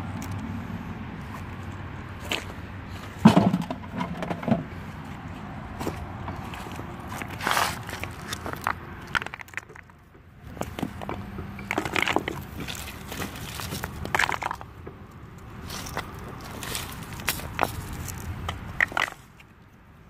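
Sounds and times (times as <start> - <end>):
gravel crunching and scraping: 0.2 - 20.0
stones clicking together: 7.2 - 10.0, 11.6 - 14.7, 17.1 - 19.5.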